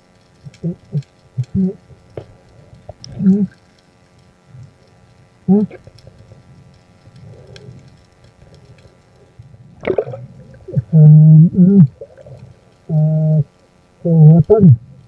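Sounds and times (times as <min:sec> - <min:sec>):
muffled humming underwater: 0:00.0 - 0:15.0.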